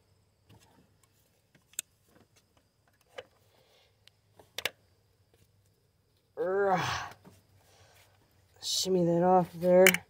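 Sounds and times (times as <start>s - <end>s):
clicks and taps of parts handled: 4.0s - 5.4s.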